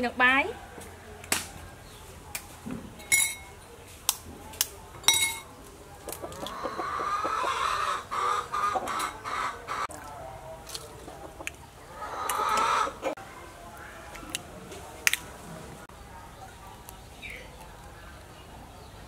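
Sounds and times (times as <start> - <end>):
chickens clucking: 5.5 - 15.0.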